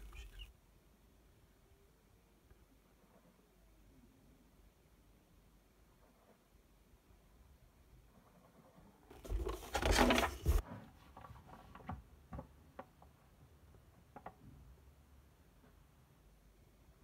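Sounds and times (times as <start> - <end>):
paper page rustling: 9.2 - 10.6.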